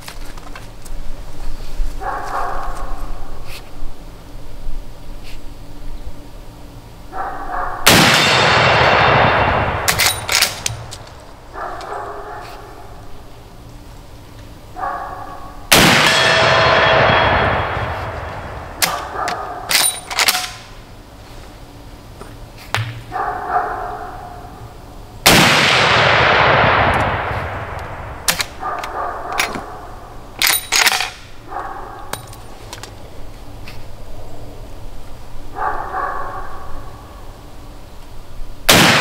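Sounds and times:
rifle shots with long echo: 0:07.8 - 0:11.2, 0:15.7 - 0:20.5, 0:25.2 - 0:28.6, 0:38.7 - 0:39.0
metallic clacks of rifle lever: 0:09.9 - 0:11.1, 0:19.7 - 0:20.7, 0:30.4 - 0:31.2.

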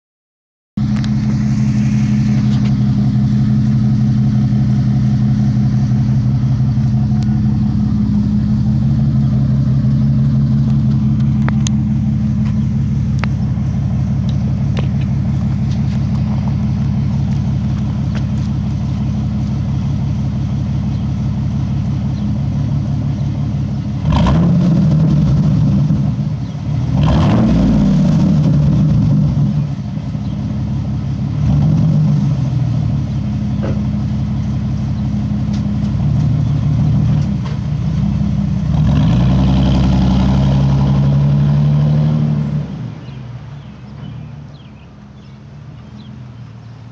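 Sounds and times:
car engine idling and revving: 0:00.8 - 0:46.9.

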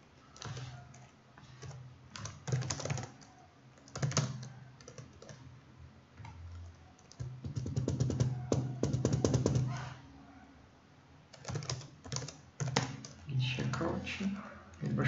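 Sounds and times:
keyboard typing: 0:00.3 - 0:05.4, 0:06.2 - 0:09.8, 0:11.3 - 0:13.8.

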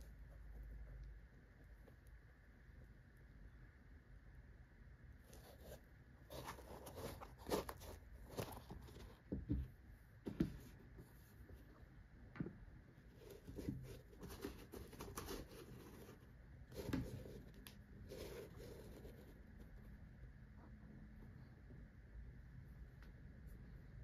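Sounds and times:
shoes rustling: 0:05.4 - 0:09.2.

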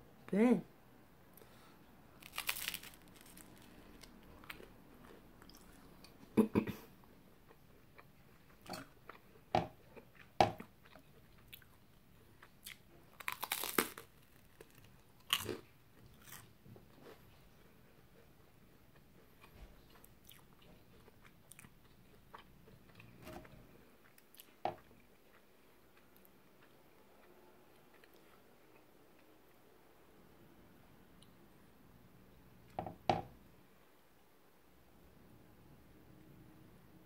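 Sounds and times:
person chewing crunchy toast: 0:02.2 - 0:06.2, 0:07.4 - 0:17.2, 0:18.1 - 0:29.3.

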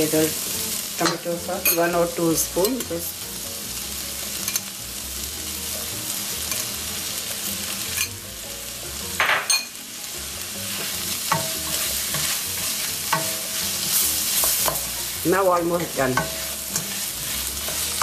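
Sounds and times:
food sizzling in a skillet: 0:00.0 - 0:18.0
utensil clicks and scrapes on pan: 0:16.2 - 0:18.0.

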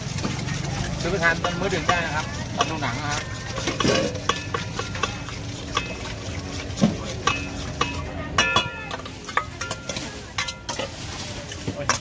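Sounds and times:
metal spoon clinking against bowl: 0:01.3 - 0:06.3, 0:07.1 - 0:10.9.

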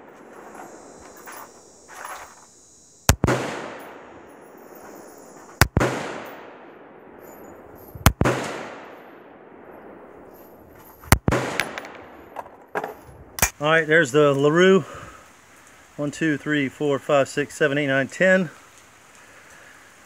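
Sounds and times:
rifle shots with echo: 0:03.1 - 0:10.5, 0:11.1 - 0:12.4.

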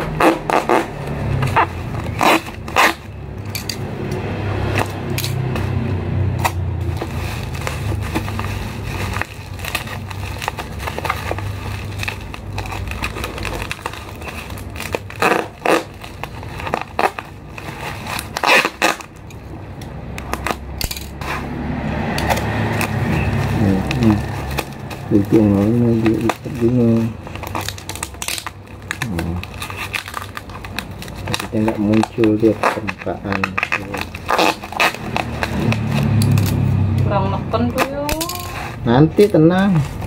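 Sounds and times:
packing tape pulled off roll: 0:00.0 - 0:03.6, 0:06.3 - 0:19.5, 0:22.1 - 0:36.7
plastic crinkling and rustling: 0:06.4 - 0:21.5, 0:22.2 - 0:36.7.

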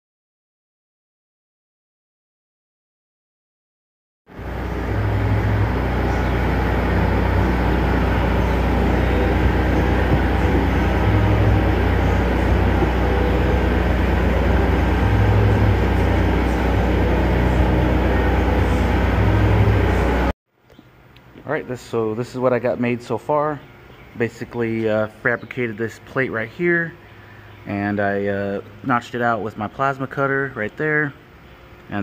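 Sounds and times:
engine droning steadily: 0:04.3 - 0:20.3.

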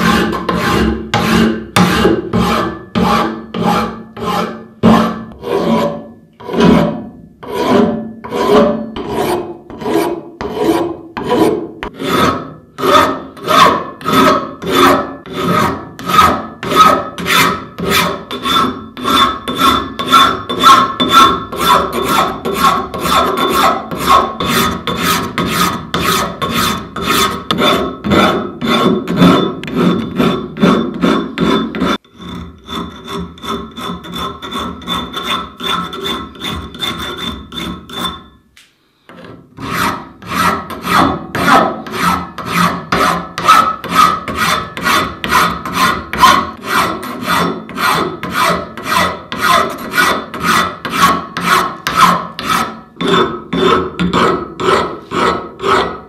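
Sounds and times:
file rasping on metal: 0:00.0 - 0:38.4, 0:39.1 - 0:56.0.

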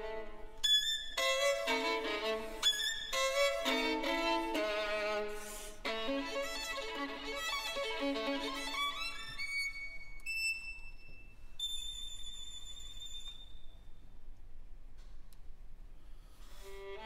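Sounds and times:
solo violin playing fast: 0:00.0 - 0:10.0, 0:16.6 - 0:17.0.

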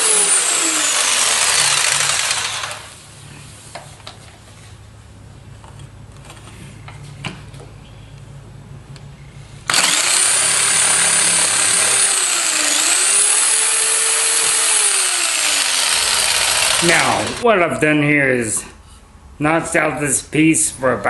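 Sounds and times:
power tool cutting wood: 0:00.0 - 0:03.0, 0:09.7 - 0:17.4.

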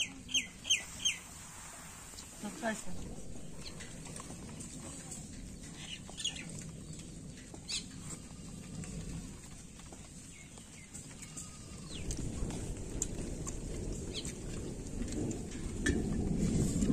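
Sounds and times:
small birds chirping: 0:00.0 - 0:01.4, 0:02.2 - 0:12.7
low outdoor rumble: 0:00.0 - 0:16.9.

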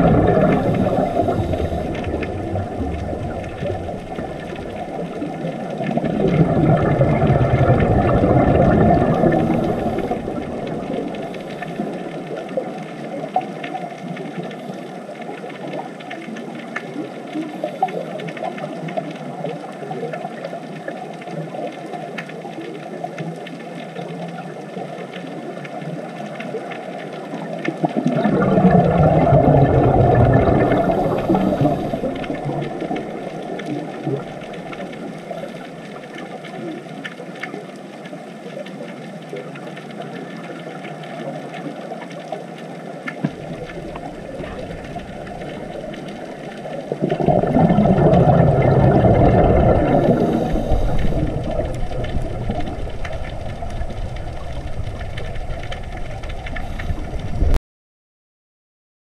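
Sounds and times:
underwater rushing hiss: 0:00.0 - 0:12.7, 0:28.0 - 0:35.6, 0:43.2 - 0:57.5
diver's exhaled bubbles gurgling: 0:00.0 - 0:57.6.

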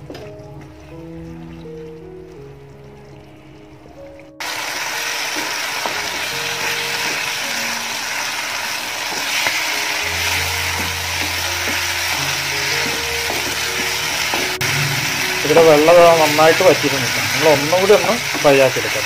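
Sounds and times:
chicken sizzling in a pan: 0:04.4 - 0:19.0.

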